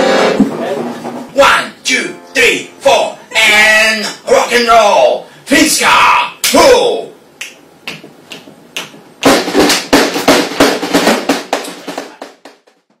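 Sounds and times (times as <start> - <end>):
drum hits: 0.0 - 1.6, 8.0 - 12.9
drum roll: 0.0 - 1.6, 8.0 - 13.0.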